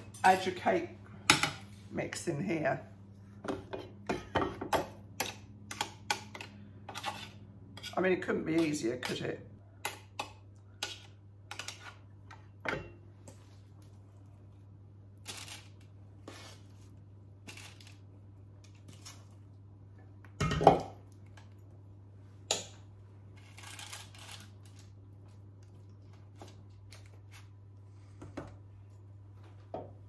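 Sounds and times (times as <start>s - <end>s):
spoon scraping mixing bowl: 5.2s - 8.8s.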